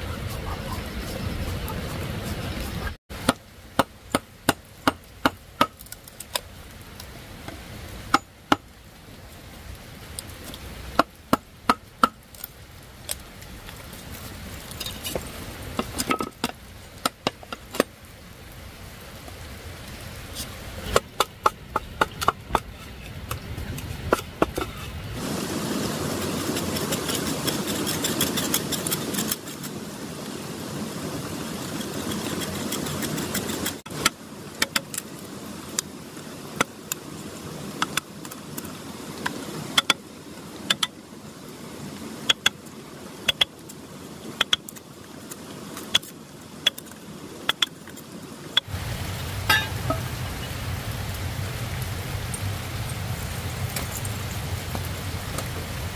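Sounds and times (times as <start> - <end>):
knife scraping bamboo: 26.2 - 29.8, 31.6 - 33.8.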